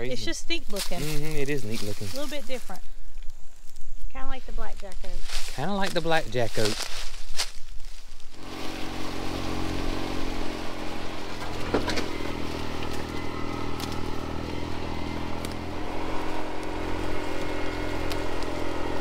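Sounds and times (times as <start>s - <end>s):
utility vehicle engine running: 8.4s - 19.0s.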